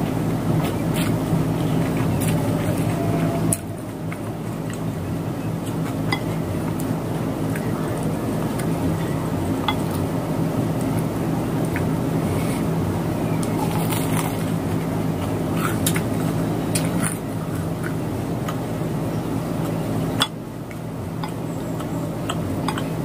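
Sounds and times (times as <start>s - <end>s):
low hum: 0.0s - 23.0s
chopsticks tapping ceramic bowl: 21.2s - 22.9s.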